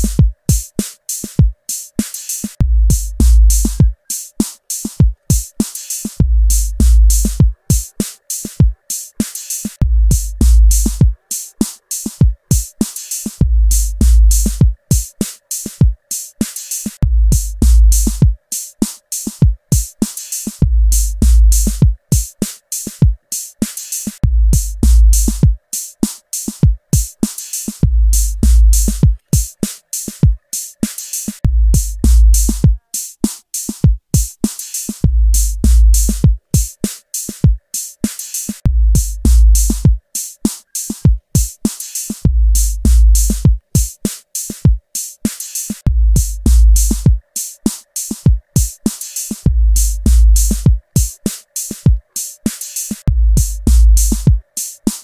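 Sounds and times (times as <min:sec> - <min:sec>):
electronic music with drum machine beat: 0:00.0 - 0:55.0
deep bass notes: 0:02.6 - 0:03.8, 0:06.2 - 0:07.3, 0:09.8 - 0:11.0, 0:17.0 - 0:18.2, 0:20.6 - 0:21.8, 0:24.2 - 0:25.4, 0:27.8 - 0:29.0, 0:31.5 - 0:32.6, 0:35.1 - 0:36.2, 0:38.7 - 0:39.8, 0:42.3 - 0:43.4, 0:45.9 - 0:47.1, 0:49.5 - 0:50.7, 0:53.1 - 0:54.3.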